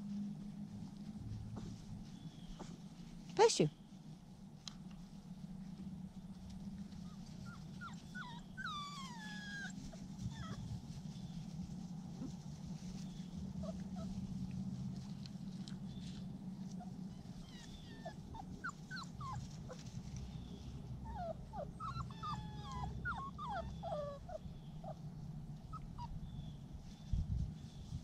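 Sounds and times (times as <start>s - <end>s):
low steady hum: 0.0s - 28.0s
puppies whimpering and yipping: 6.9s - 14.6s, 16.0s - 27.0s.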